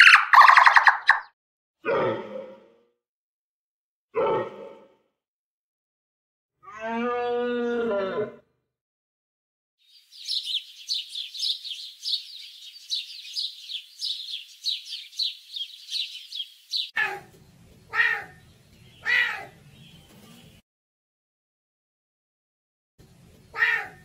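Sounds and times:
animal cries: 16.7 - 17.3, 17.9 - 18.4, 19.0 - 19.6, 23.5 - 24.0.

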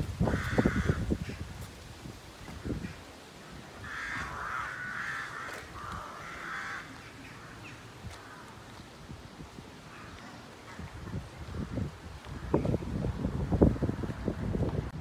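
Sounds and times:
crows cawing: 0.2 - 1.3, 3.8 - 8.7.

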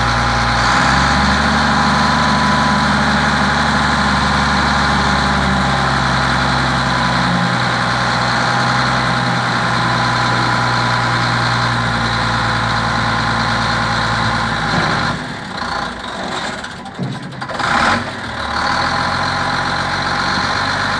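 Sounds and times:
diesel truck engine idling: 0.0 - 20.9.

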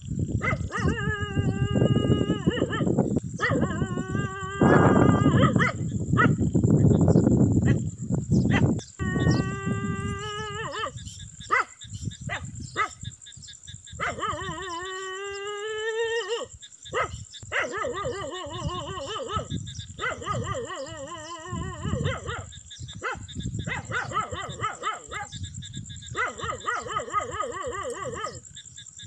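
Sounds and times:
dog barking in sharp yelps: 0.4 - 1.1, 2.5 - 3.9, 4.7 - 6.4, 11.5 - 13.0, 14.0 - 14.8, 16.2 - 25.4, 26.1 - 28.4
dog long drawn-out cries: 0.4 - 6.4, 9.0 - 11.8, 14.0 - 25.4, 26.1 - 28.4.

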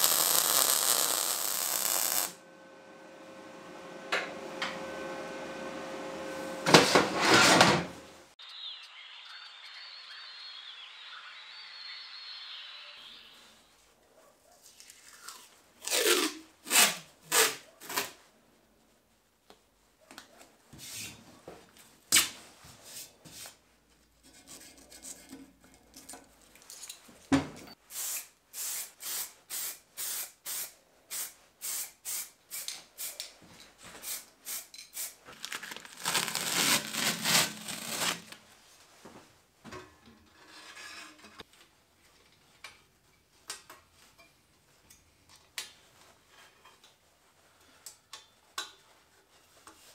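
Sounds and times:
adhesive tape ripping off roll: 0.0 - 2.4, 14.8 - 18.2, 35.0 - 38.4
steady hiss: 0.0 - 2.4.

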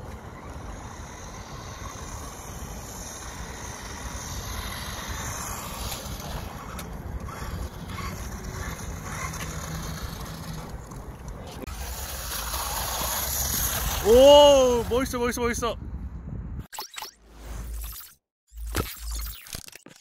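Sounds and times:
rc car motor and tyres on paving: 0.0 - 16.2
wind rumbling on microphone: 12.7 - 16.7.

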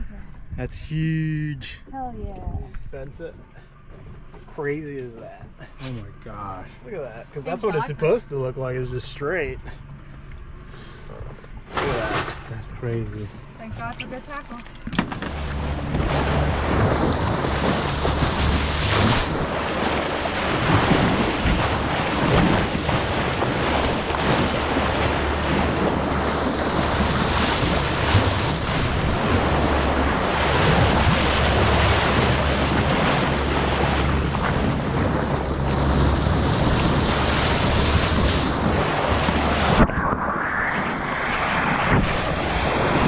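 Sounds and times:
low engine hum: 0.0 - 43.0
water rushing along boat hull: 1.3 - 43.0
wind buffeting microphone: 15.3 - 43.0.

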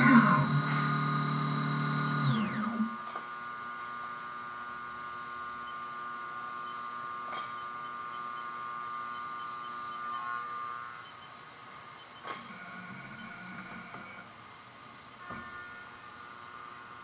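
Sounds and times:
low machine hum: 0.0 - 17.0
milling machine whine: 0.0 - 17.0.

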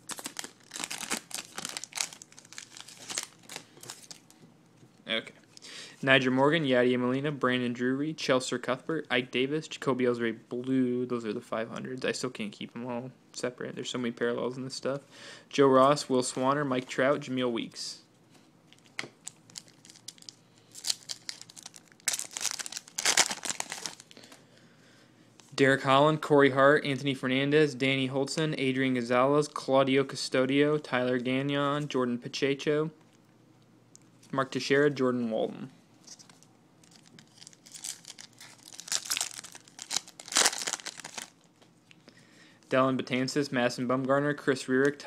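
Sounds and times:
foil wrapper crinkling: 0.0 - 4.3, 18.8 - 24.4, 36.1 - 41.6.

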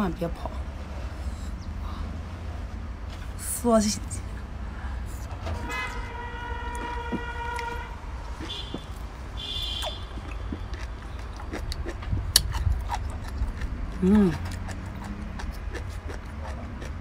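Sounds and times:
horn tone and toots: 5.4 - 10.6
mouth chewing and sucking: 6.7 - 17.0.

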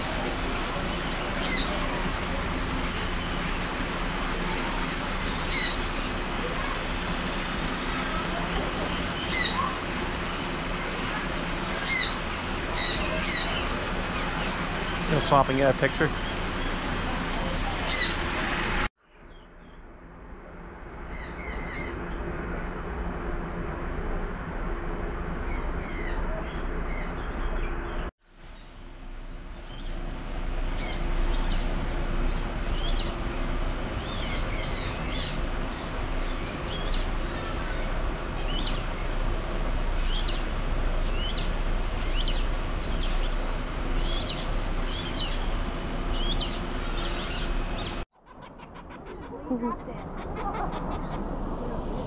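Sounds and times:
birds chirping: 0.0 - 19.8, 25.4 - 52.0.

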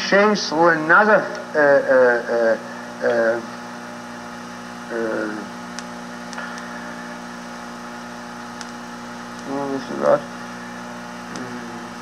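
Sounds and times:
electrical hum: 0.0 - 12.0
person hesitating: 11.3 - 11.9.

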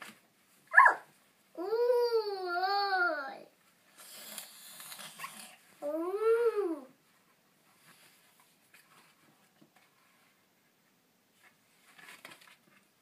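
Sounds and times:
toddler vocal sound: 0.7 - 3.5, 5.8 - 7.0
board book pages turning: 4.0 - 5.6.

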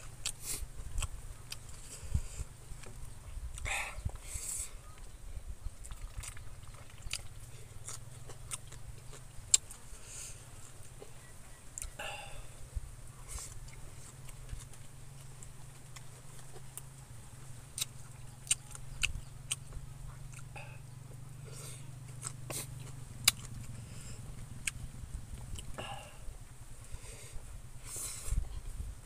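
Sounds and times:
person chewing food: 0.0 - 5.1, 5.8 - 28.7
low hum: 0.0 - 29.0
mouth clicks and smacks: 5.8 - 9.8.

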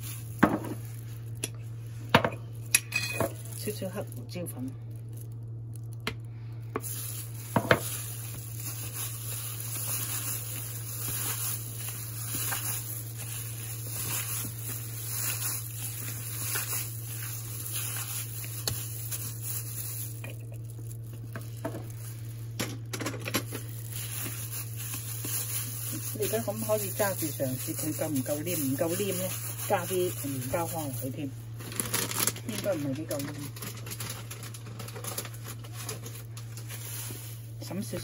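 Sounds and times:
hand kneading minced meat: 0.0 - 2.1, 3.4 - 22.6, 23.4 - 31.3.

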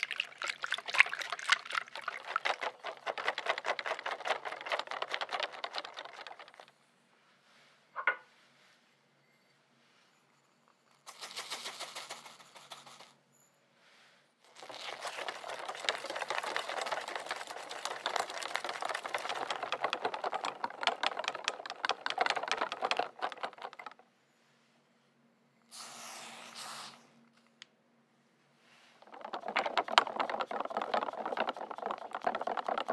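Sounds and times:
sugar poured into liquid: 0.0 - 6.7, 14.4 - 20.5
whisk beating in glass bowl: 0.0 - 6.7, 14.5 - 23.9, 29.0 - 32.9.

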